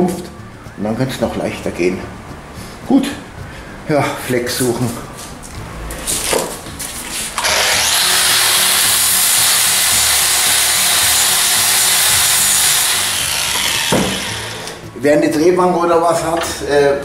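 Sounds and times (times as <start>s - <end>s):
angle grinder grinding metal: 5.9s - 14.9s.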